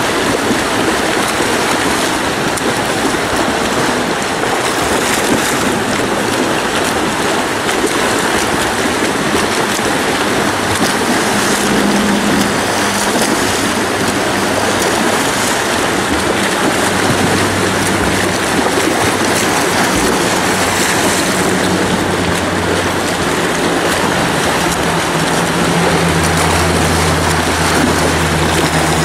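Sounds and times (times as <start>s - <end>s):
pool water splashing: 0.0s - 29.0s
low hum: 8.0s - 29.0s.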